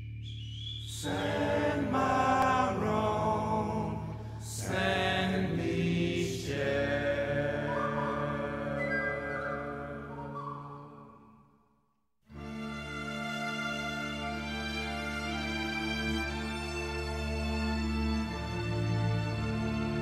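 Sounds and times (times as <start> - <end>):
chanting voices: 0.9 - 11.2.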